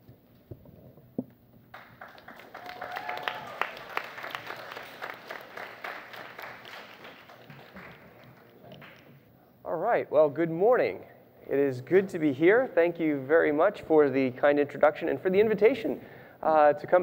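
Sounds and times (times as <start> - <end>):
audience applauding: 1.7 - 9.1.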